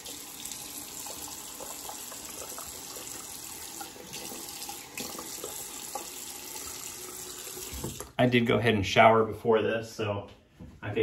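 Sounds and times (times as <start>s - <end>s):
sink tap running: 0.0s - 8.2s.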